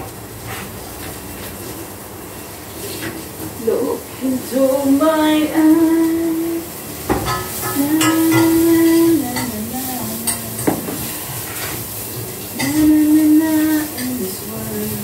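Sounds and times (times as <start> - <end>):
woman singing: 3.6 - 6.7, 7.6 - 10.9, 12.5 - 15.0
utensil clinking against pot: 7.1 - 9.6, 10.2 - 11.1.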